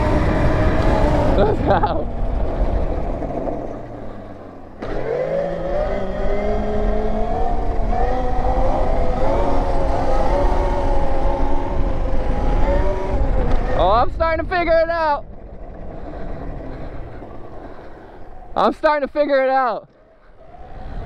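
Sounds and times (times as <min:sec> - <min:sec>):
electric motor whining: 0:00.0 - 0:14.2
wind rumble on microphone: 0:00.0 - 0:19.1, 0:20.1 - 0:21.0.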